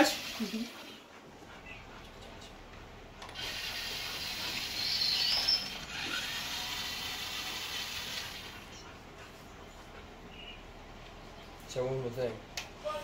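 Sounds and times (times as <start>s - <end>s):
toy electric motor whirring: 3.3s - 8.8s.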